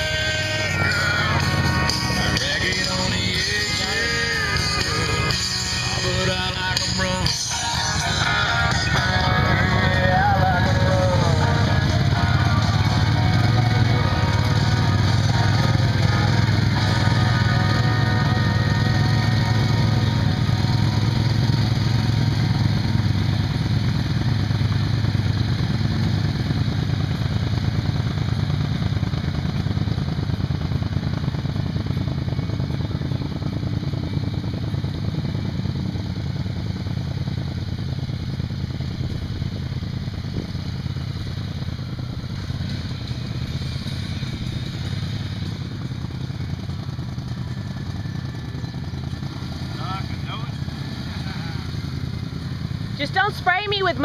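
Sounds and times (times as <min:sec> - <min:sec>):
quad bike engine running: 0:00.0 - 0:54.0.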